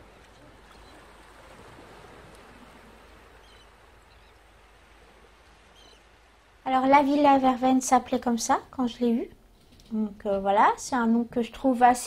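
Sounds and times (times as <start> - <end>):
surf washing: 0.0 - 8.3.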